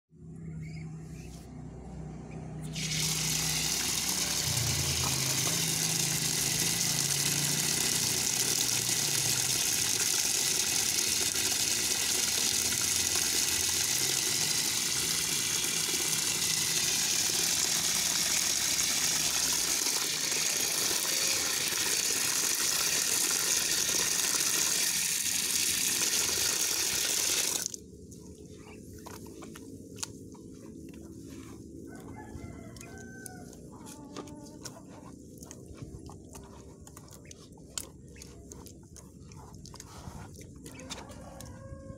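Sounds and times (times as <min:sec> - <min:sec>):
tap water gushing into basin: 0:02.6 - 0:27.8.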